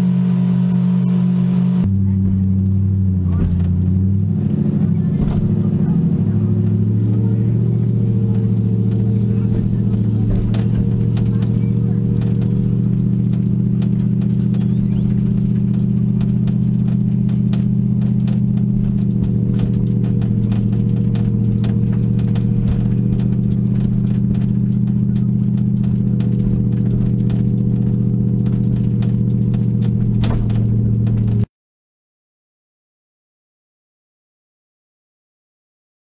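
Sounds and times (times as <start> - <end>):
vehicle engine droning: 0.0 - 31.5
boat rattling on trailer: 3.4 - 31.5.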